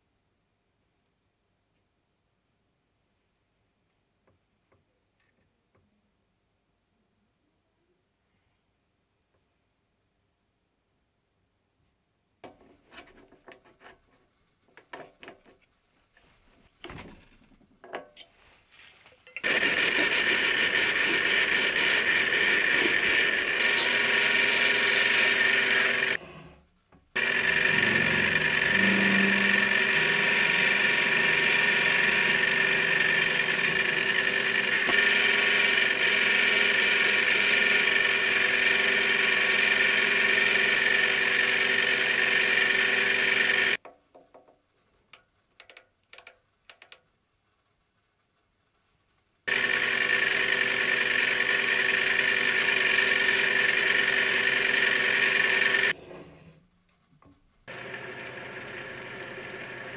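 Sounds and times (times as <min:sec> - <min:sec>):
mini lathe whining: 0:19.4 - 0:26.6, 0:27.2 - 0:43.8, 0:49.5 - 0:56.6, 0:57.7 - 0:59.9.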